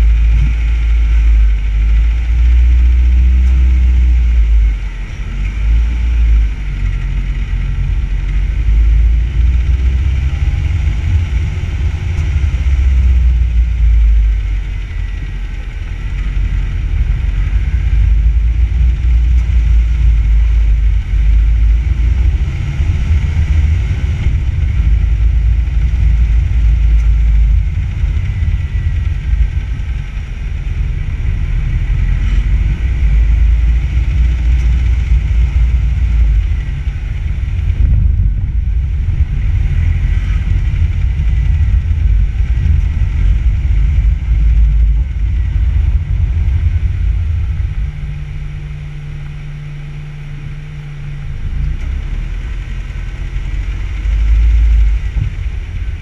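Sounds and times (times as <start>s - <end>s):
road noise: 0.0s - 56.0s
wind buffeting: 6.0s - 49.3s.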